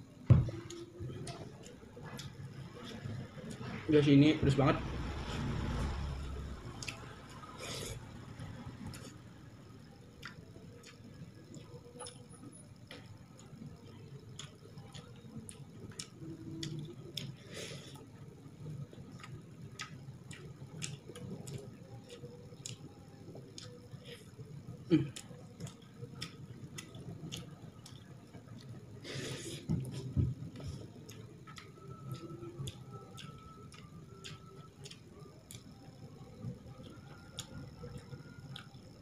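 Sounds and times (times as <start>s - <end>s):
mouth chewing: 6.8s - 8.0s, 10.1s - 12.2s, 12.9s - 18.1s, 19.0s - 38.9s.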